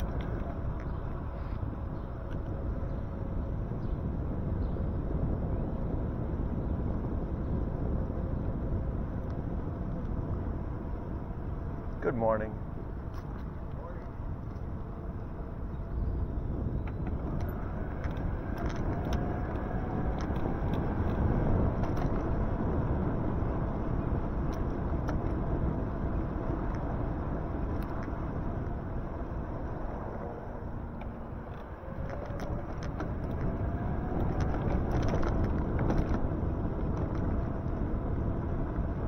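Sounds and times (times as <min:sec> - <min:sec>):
tyre and wind rumble: 0:00.0 - 0:39.0.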